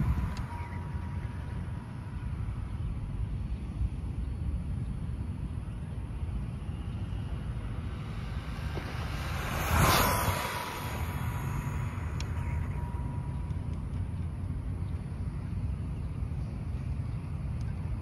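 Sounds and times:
rc truck passing at speed: 0.0s - 2.5s, 6.6s - 14.2s
thin electric whine: 0.0s - 18.0s
wind rumble on microphone: 0.0s - 18.0s.

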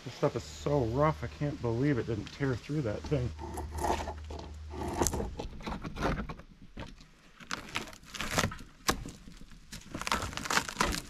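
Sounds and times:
scraping: 2.4s - 11.0s
wood cracking and snapping: 3.4s - 11.0s
tarp crinkling: 7.2s - 11.0s.

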